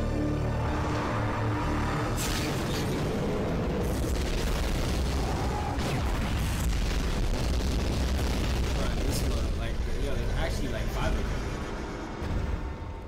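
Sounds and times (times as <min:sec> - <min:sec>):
explosions: 0:02.1 - 0:11.5.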